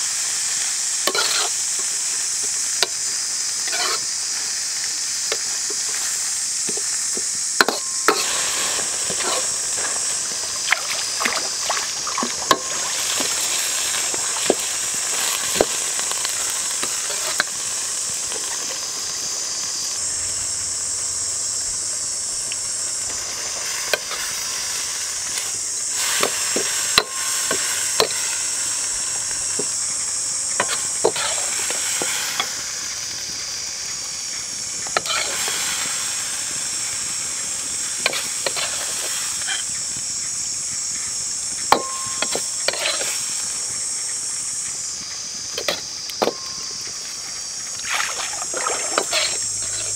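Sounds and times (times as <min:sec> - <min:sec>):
food sizzling in a wok: 0:00.0 - 0:49.9
metal ladle scraping a wok: 0:01.1 - 0:01.6, 0:03.6 - 0:04.1, 0:07.6 - 0:10.0, 0:30.6 - 0:31.7, 0:35.0 - 0:35.5, 0:41.8 - 0:43.1, 0:48.4 - 0:49.9.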